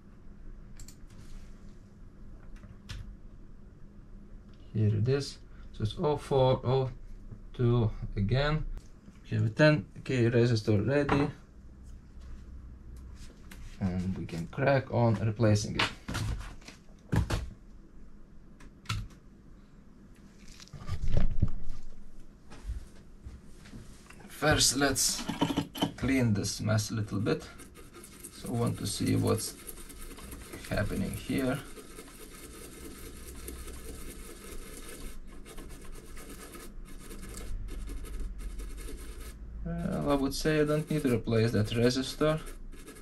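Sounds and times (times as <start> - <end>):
computer keyboard and mouse clicks: 0.8 - 1.0
brush scrubbing circuit board: 26.4 - 43.0.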